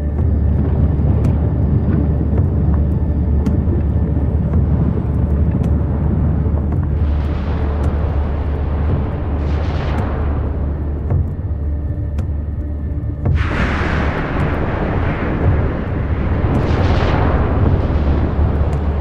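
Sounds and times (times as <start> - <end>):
volcano roaring: 0.0 - 19.0
lava fountains hissing: 13.3 - 19.0.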